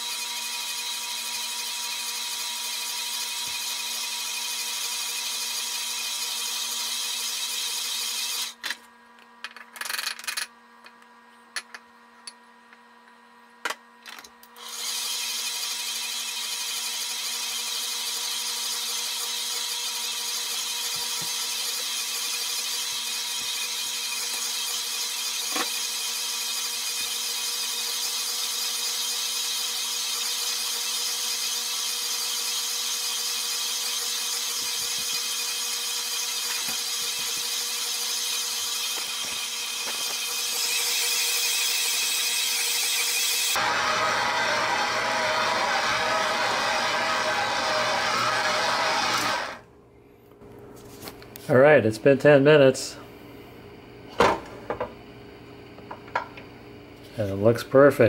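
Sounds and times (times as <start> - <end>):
stand mixer motor whine: 0.0 - 8.6, 14.6 - 49.7.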